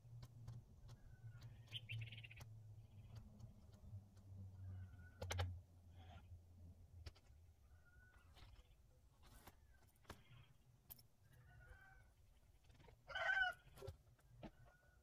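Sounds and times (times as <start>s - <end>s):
faint bird chirps: 0.9s - 3.2s, 7.6s - 10.6s.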